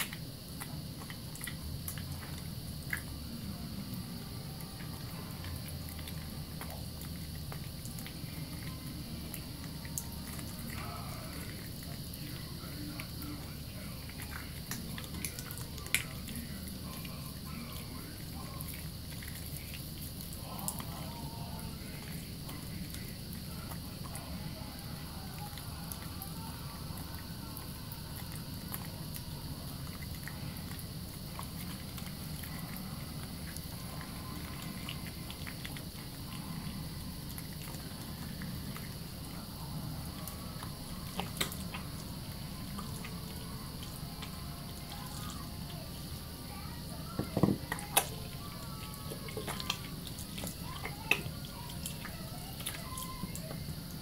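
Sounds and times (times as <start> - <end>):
wet hands lathering soap: 0.0 - 54.0
tap water running into sink: 47.2 - 48.1.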